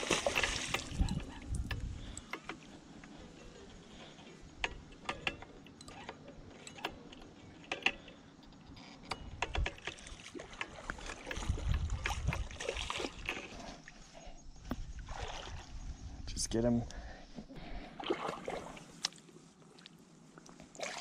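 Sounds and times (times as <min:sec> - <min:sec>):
fish thrashing and splashing: 0:00.0 - 0:02.1, 0:09.6 - 0:13.9, 0:17.9 - 0:19.0.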